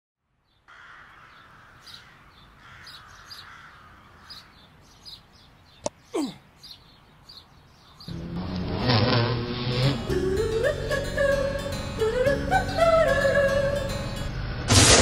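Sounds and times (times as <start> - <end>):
steady outdoor hiss: 0.2 - 15.0
birds chirping: 0.4 - 8.4.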